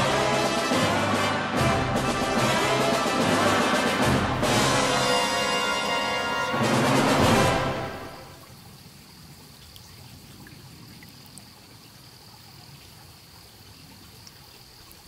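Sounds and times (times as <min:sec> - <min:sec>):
orchestral music: 0:00.0 - 0:08.4
stream trickling over rocks: 0:08.2 - 0:15.0.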